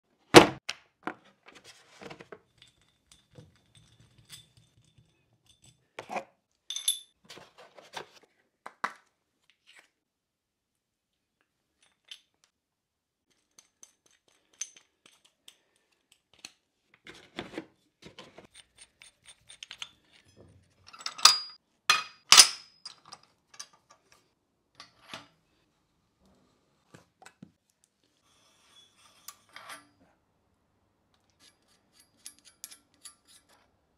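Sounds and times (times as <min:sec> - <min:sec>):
tools clinking on wooden bench: 0:18.6 - 0:23.9.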